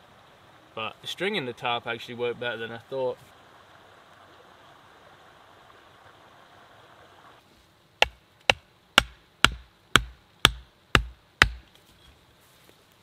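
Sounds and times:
faint stream water hiss: 0.0 - 13.0
hatchet knocking wooden stake: 8.0 - 11.7.

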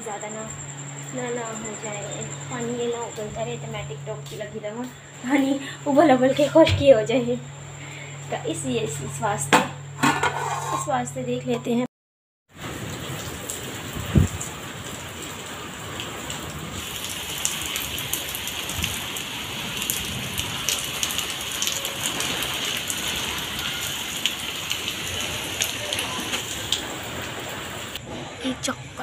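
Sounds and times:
rain on concrete: 12.5 - 28.0.

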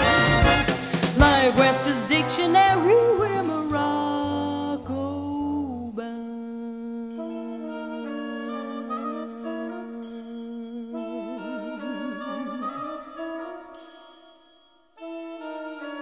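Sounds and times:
jazz band playing: 0.0 - 4.9.

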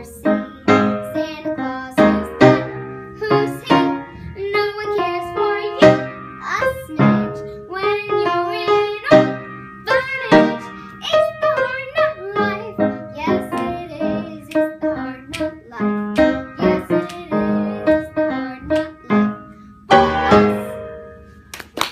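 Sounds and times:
girl singing: 0.0 - 21.2
upright piano accompaniment: 0.0 - 21.9.

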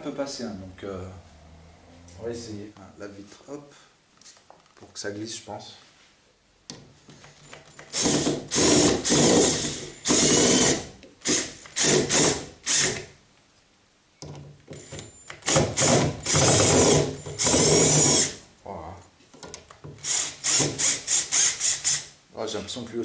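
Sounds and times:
cordless drill driving screw: 7.6 - 13.1, 14.8 - 18.4, 20.0 - 22.1.

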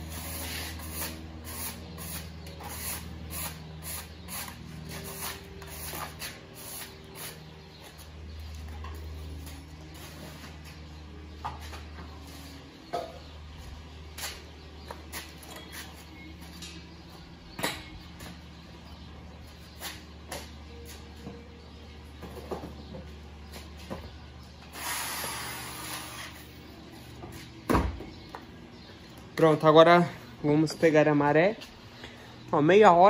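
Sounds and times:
steady low hum: 0.0 - 33.0
scraping and brushing strokes: 0.1 - 7.4.

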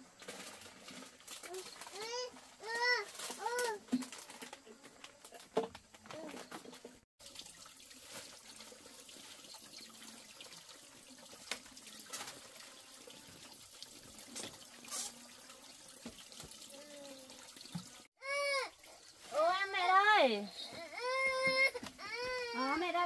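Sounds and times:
water running from tap: 7.2 - 20.4
child crying out: 18.2 - 18.7, 20.7 - 22.8.

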